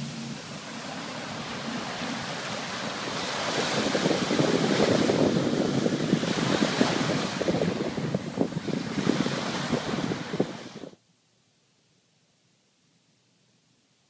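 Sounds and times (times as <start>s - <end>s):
small waves breaking: 0.0s - 11.0s
wind buffeting microphone: 0.0s - 11.0s.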